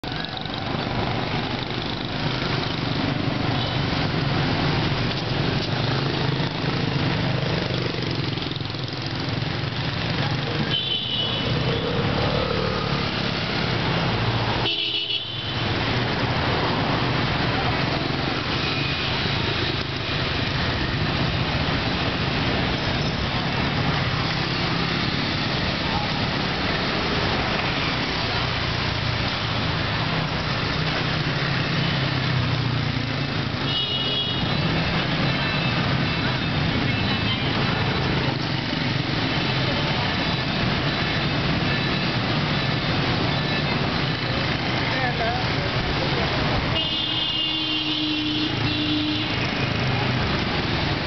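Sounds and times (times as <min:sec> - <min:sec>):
motorbike engines humming: 0:00.0 - 0:51.0.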